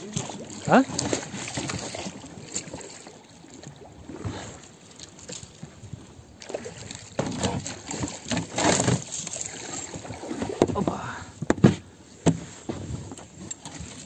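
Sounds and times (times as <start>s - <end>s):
water splashing: 0.0s - 11.4s
oar strokes: 0.0s - 14.0s
water sloshing against hull: 0.0s - 14.0s
light knocks on boat: 11.4s - 12.8s.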